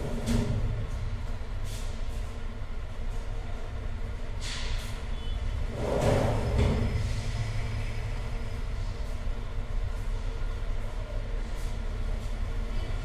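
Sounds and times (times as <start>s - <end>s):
metal drawer sliding shut: 5.7s - 7.0s.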